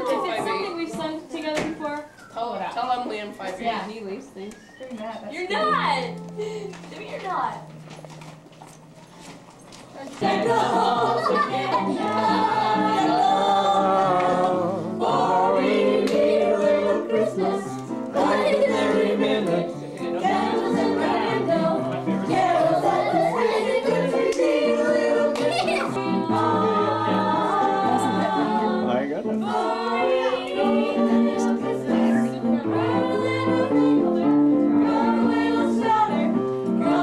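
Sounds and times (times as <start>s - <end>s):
people singing unaccompanied: 10.1s - 37.0s.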